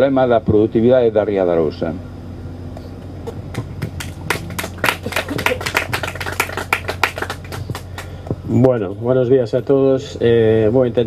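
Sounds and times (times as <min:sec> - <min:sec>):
audience applause: 0:03.5 - 0:08.2.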